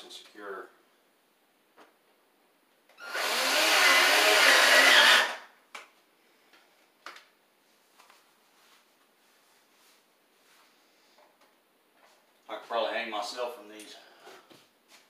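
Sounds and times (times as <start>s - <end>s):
cordless drill driving screw into wood: 3.0s - 5.5s.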